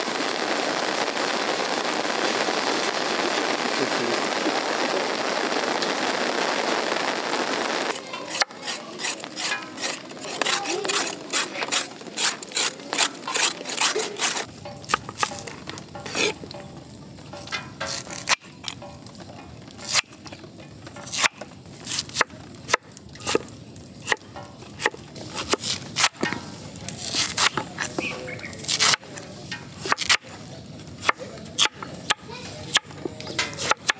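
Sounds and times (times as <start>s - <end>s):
food sizzling: 0.0s - 33.9s
ladle scraping cooking pan: 8.0s - 22.2s.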